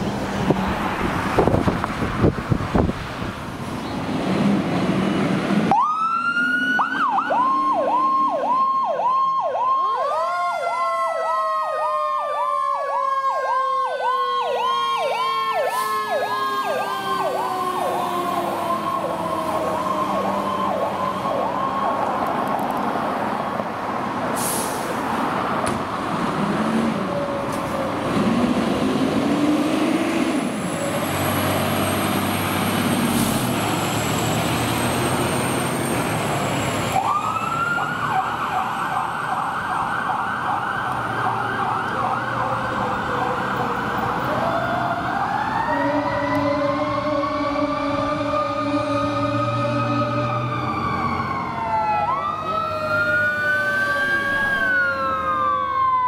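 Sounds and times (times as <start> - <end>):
engine and road noise: 0.0 - 56.0
electronic siren yelping: 5.7 - 22.2, 37.0 - 56.0.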